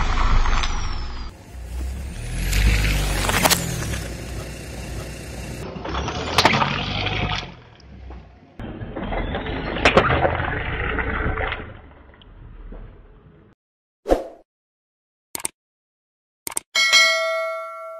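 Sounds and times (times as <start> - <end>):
low rumble of car: 0.0 - 13.5.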